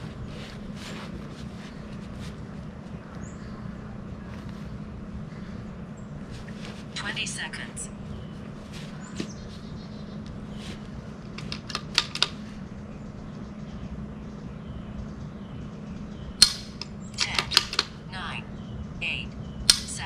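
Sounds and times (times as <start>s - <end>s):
low hum: 0.0s - 20.0s
rifle action clicking: 16.4s - 17.9s.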